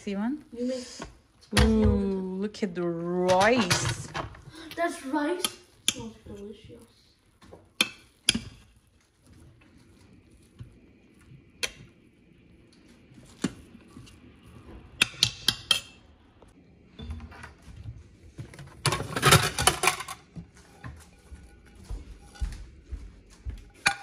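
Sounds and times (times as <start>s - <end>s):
dishes and utensils clinking: 18.8s - 22.8s, 23.7s - 24.0s.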